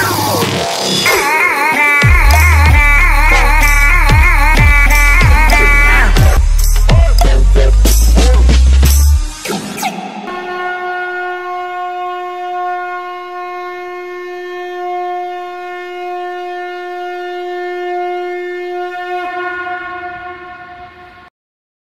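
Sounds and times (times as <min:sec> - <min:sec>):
conch shell blown: 0:09.8 - 0:21.3.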